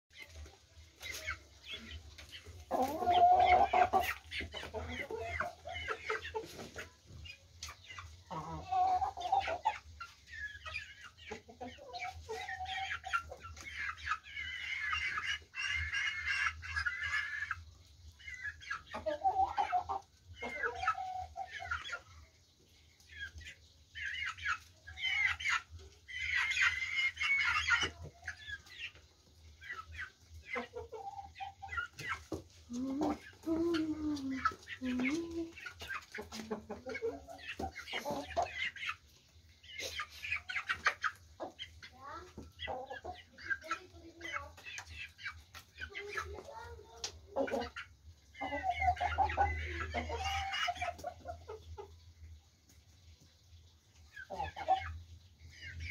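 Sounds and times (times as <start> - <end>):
chickens clucking: 0.1 - 55.9.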